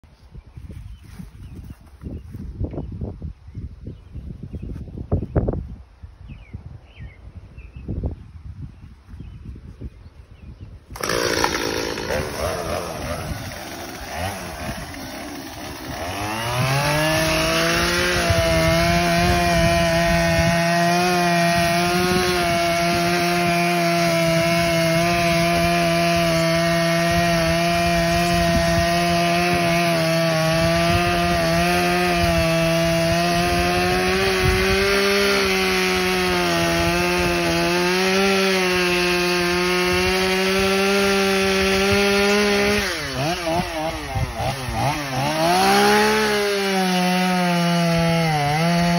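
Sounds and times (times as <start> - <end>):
chainsaw cutting wood: 10.9 - 48.9.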